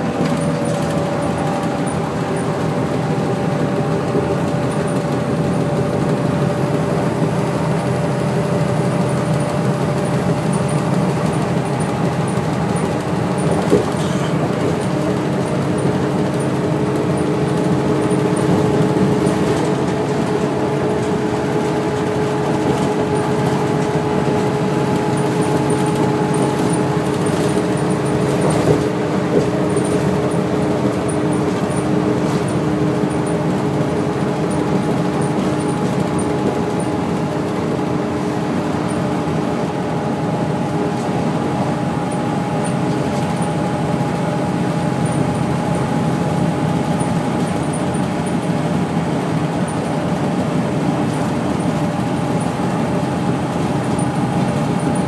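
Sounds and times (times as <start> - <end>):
bus engine whine: 0.0 - 55.0
road noise: 0.0 - 55.0.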